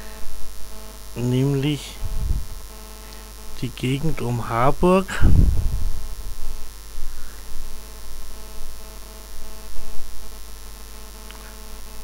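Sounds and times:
steady multi-toned hum: 0.0 - 12.0
wind buffeting microphone: 2.0 - 2.6, 5.2 - 6.4.

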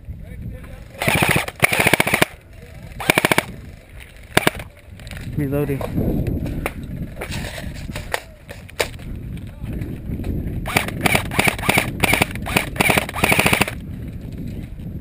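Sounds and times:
airsoft rifle full-auto bursts: 1.0 - 2.4, 3.0 - 3.5, 4.4 - 4.6, 10.6 - 13.8.

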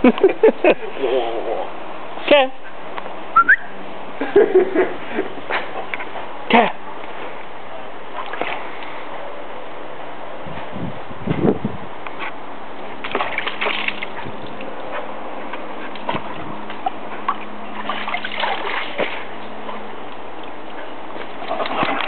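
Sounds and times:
water sloshing and splashing: 8.1 - 9.0, 12.8 - 22.0.

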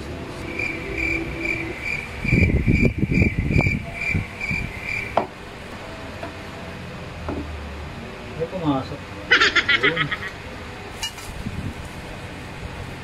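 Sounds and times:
high chirp: 0.2 - 5.2.

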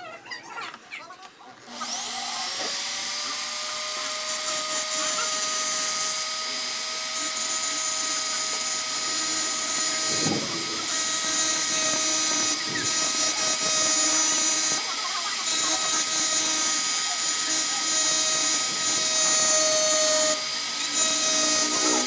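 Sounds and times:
engraving bit grinding: 1.7 - 22.0
rotary tool whining: 1.7 - 22.0.

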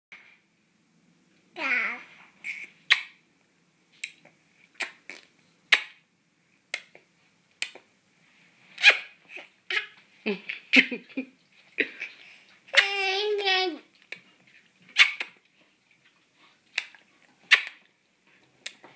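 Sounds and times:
baby vocal sound: 1.6 - 2.9, 12.7 - 13.8
baby lip smacks: 4.0 - 6.0, 6.7 - 7.9, 15.0 - 15.4, 16.7 - 17.8, 18.6 - 18.9.

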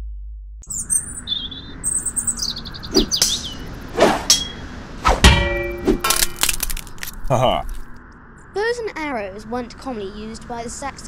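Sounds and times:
small birds chirping: 0.7 - 4.8
metal striking metal: 3.0 - 7.1.

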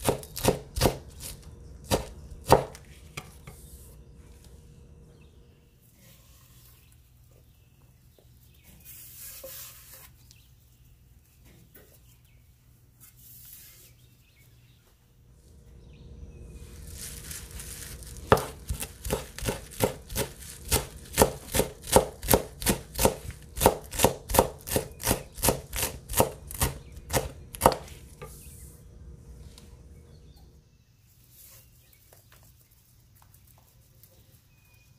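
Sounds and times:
knife chopping on wooden board: 0.0 - 3.6, 18.1 - 28.4
soft rustles: 16.5 - 21.0.

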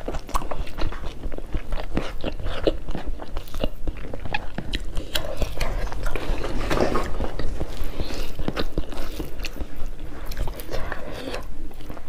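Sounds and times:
chewing and biting: 0.0 - 12.0.

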